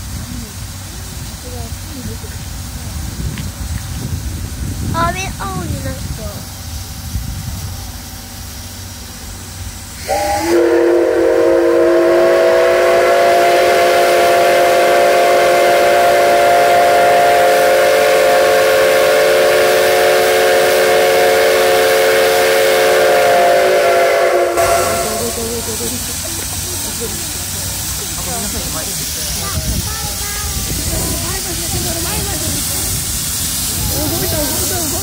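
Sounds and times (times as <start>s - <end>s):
hiss of steam: 0.0s - 35.0s
steam whistle blast: 9.9s - 25.6s.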